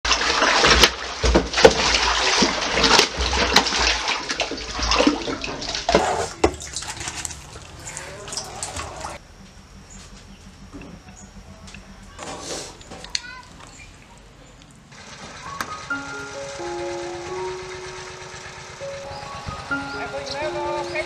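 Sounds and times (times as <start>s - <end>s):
water splashing in container: 0.1s - 9.2s.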